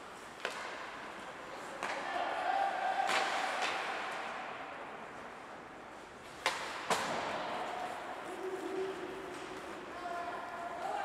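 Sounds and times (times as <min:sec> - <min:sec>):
hockey sticks striking puck: 0:00.3 - 0:02.2, 0:03.0 - 0:04.5, 0:06.3 - 0:07.7.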